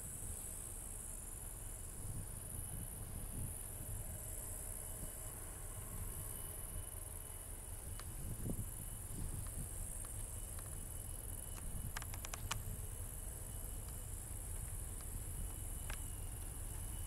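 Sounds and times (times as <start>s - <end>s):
distant diesel locomotive rumble: 0.0s - 17.0s
insects chirring in grass: 0.0s - 17.0s
sharp clicks: 11.5s - 12.7s.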